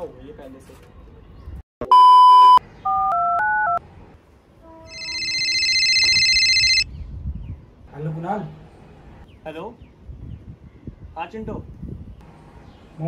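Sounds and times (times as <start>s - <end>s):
keypad dialing tones: 4.9s - 6.8s
warbling phone ring: 4.9s - 6.8s.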